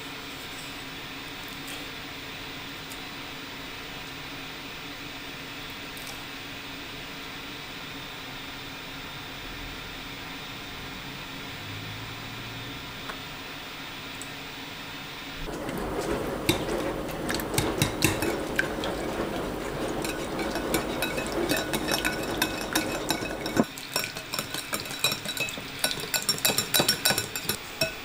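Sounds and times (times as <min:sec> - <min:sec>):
whisk churning wet mixture: 0:15.4 - 0:28.0
whisk wires clinking on glass: 0:15.6 - 0:28.0.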